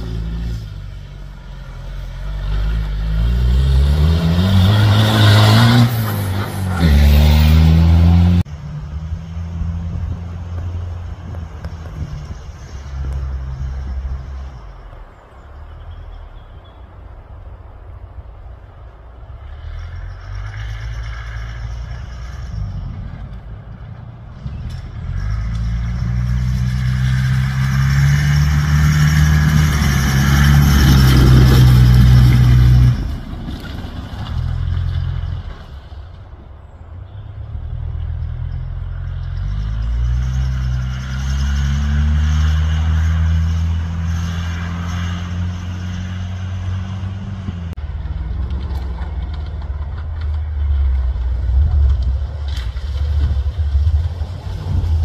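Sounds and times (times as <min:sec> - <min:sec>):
off-road vehicle engine revving: 0:00.0 - 0:15.1, 0:19.3 - 0:35.9, 0:37.1 - 0:55.0.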